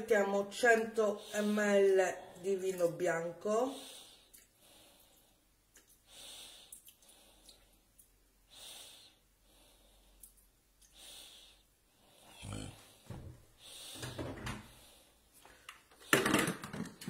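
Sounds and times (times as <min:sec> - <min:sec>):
faint breathing: 0:03.6 - 0:16.5.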